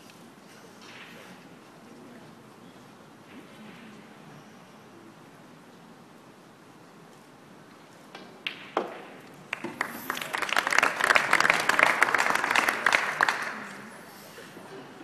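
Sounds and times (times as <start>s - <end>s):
audience applauding: 9.5s - 14.1s.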